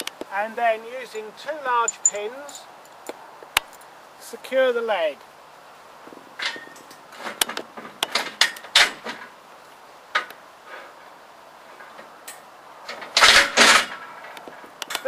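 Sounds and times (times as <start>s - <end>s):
metal pins clicking and knocking: 1.8s - 2.6s.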